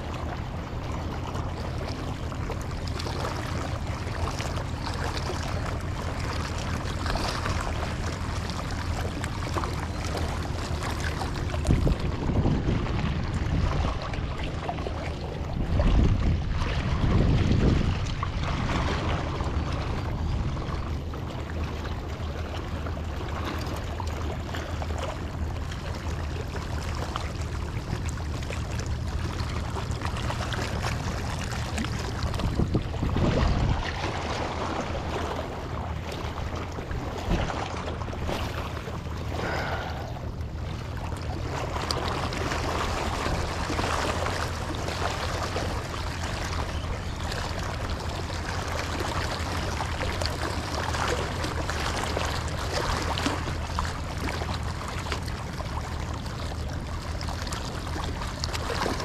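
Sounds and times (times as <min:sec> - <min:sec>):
small waves lapping against rocks: 0:00.0 - 0:59.0
steady low hum: 0:00.0 - 0:59.0
wind on microphone: 0:11.5 - 0:21.0, 0:30.8 - 0:38.6.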